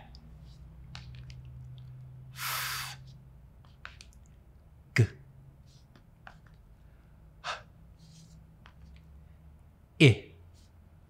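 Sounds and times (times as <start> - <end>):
man making an f sound: 5.0 - 5.2.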